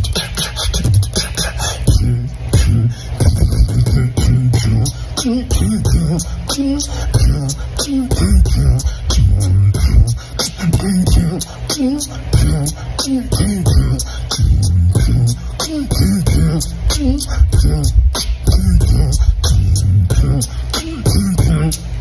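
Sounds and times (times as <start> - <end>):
person beatboxing: 0.0 - 22.0
pitched vocal sounds bending: 0.0 - 22.0.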